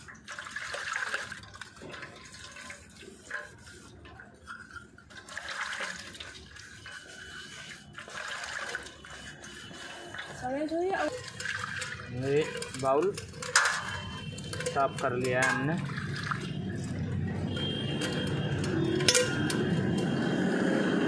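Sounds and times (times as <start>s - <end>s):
liquid sloshing and splashing: 0.0s - 20.4s.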